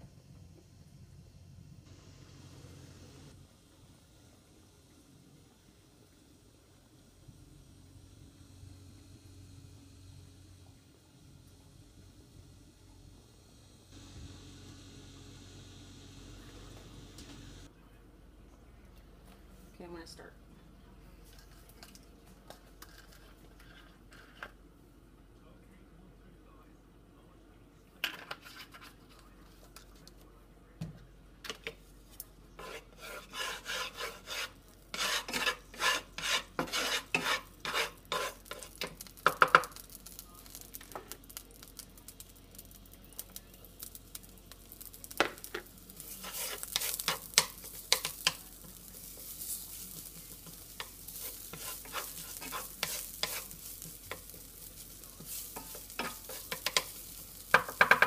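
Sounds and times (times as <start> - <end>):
wooden spatula scraping pan: 22.8 - 24.6, 28.1 - 29.2, 32.6 - 39.6, 45.9 - 58.0
garlic sizzling in hot oil: 32.6 - 58.0.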